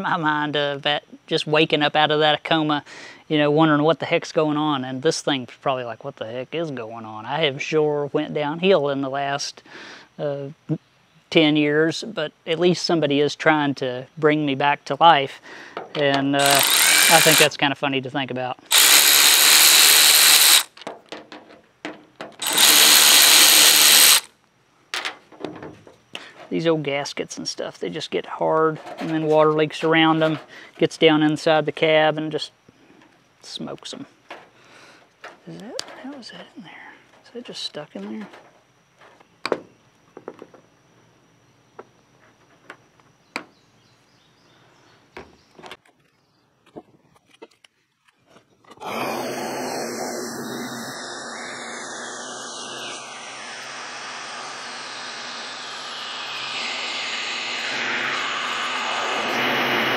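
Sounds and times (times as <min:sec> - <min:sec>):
power driver motor: 0:16.4 - 0:17.5, 0:18.7 - 0:20.8, 0:22.4 - 0:24.3, 0:48.8 - 0:59.9
screw and bit clicks: 0:16.4 - 0:17.5, 0:18.7 - 0:20.9, 0:22.4 - 0:24.3.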